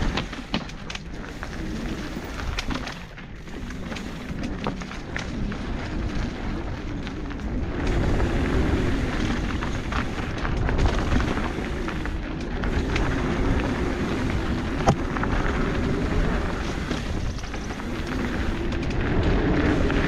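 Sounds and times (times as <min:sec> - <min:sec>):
bike rattles: 0:00.0 - 0:20.0
bike tyres on dirt trail: 0:00.0 - 0:20.0
wind rumble on microphone: 0:00.0 - 0:20.0.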